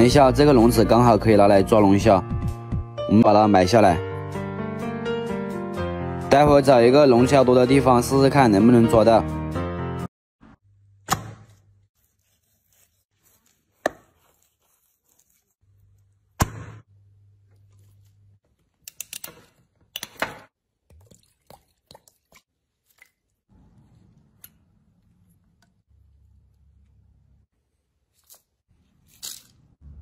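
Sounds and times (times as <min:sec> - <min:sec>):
knife chopping ribs: 0:11.1 - 0:15.3.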